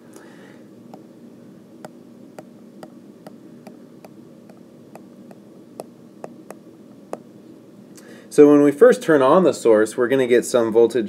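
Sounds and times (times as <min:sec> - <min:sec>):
faint steady hum: 0:00.0 - 0:11.0
stylus tapping on tablet screen: 0:01.8 - 0:07.3.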